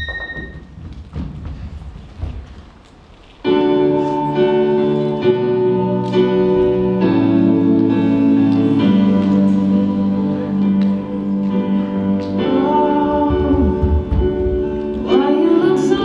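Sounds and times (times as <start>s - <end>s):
piano-like keyboard chords: 3.4s - 16.0s.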